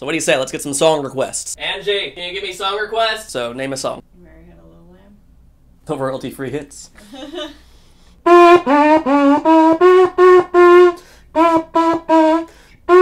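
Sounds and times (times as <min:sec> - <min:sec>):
plastic trumpet playing tune: 0:08.2 - 0:13.0.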